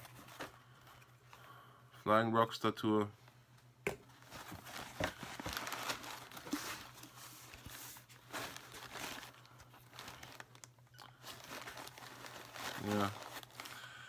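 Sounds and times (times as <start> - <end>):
packing wrap crinkling and tearing: 4.2 - 14.0.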